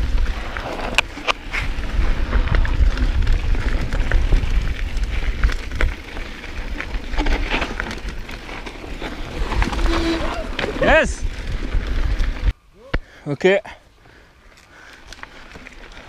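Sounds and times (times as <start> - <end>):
bike clicking and rattling: 0.0 - 12.6, 13.9 - 16.0
tyres rolling on dirt: 0.0 - 12.6, 13.9 - 16.0
wind rumbling on microphone: 0.0 - 12.6.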